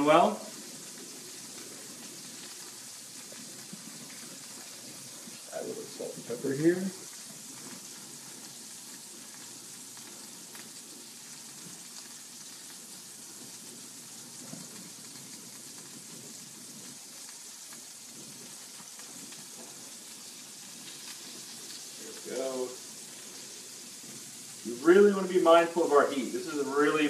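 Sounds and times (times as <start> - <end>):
patties sizzling in hot oil: 0.0 - 27.0.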